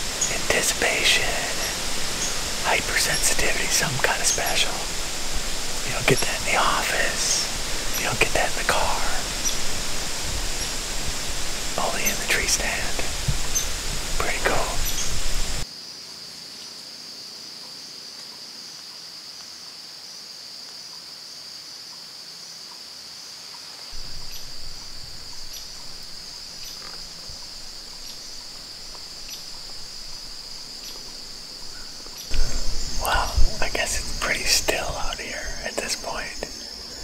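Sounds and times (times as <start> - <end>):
low rumble: 0.0 - 15.6, 24.0 - 36.5
high-pitched insect chorus: 0.0 - 37.0.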